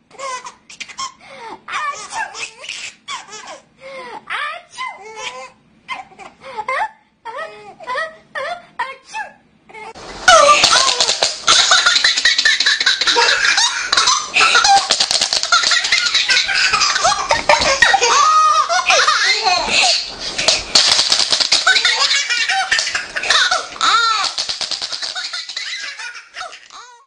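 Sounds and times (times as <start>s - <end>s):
baby laughing: 0.1s - 3.7s, 9.8s - 27.0s.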